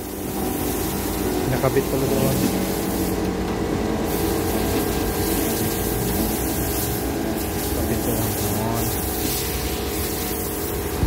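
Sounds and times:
pressure washer pump hum: 0:00.0 - 0:11.0
water spray hissing: 0:04.1 - 0:11.0.

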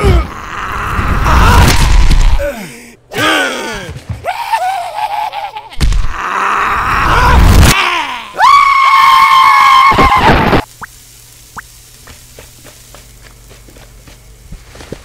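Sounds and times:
high-pitched scream: 0:06.2 - 0:10.6.

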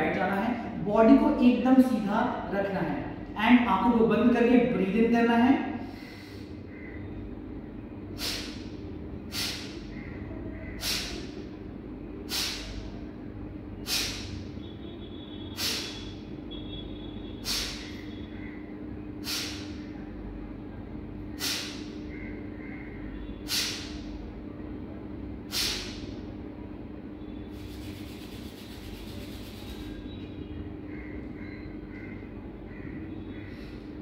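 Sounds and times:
steady low hum: 0:00.0 - 0:34.0
forceful nasal exhalations: 0:08.2 - 0:08.6, 0:09.3 - 0:09.7, 0:12.3 - 0:12.8, 0:19.2 - 0:19.7, 0:21.4 - 0:21.8, 0:23.5 - 0:23.9, 0:25.5 - 0:26.0.

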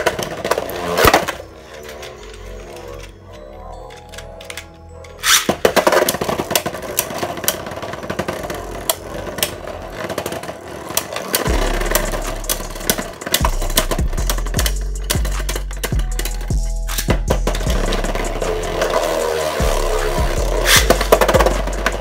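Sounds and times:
spinning tops whirring: 0:04.0 - 0:22.0.

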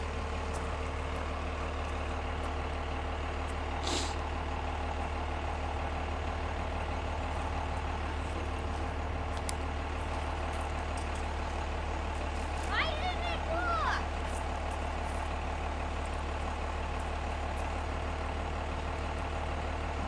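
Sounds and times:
vehicle engine idling: 0:00.0 - 0:20.0
short hiss: 0:03.8 - 0:04.2.

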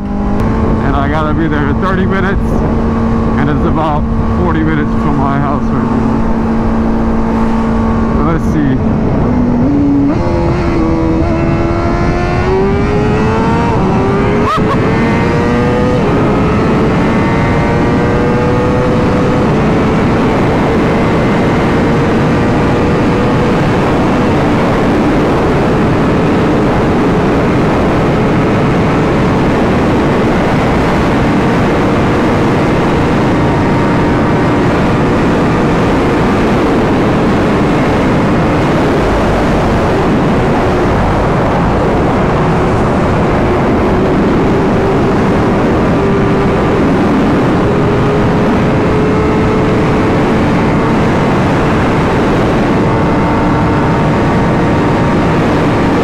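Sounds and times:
motorcycle engine accelerating: 0:00.0 - 0:56.0
wind noise: 0:00.0 - 0:56.0.

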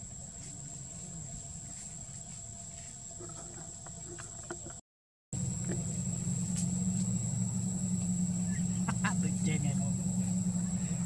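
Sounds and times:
high whine: 0:05.4 - 0:11.0
vehicle engine idling: 0:05.4 - 0:11.0.

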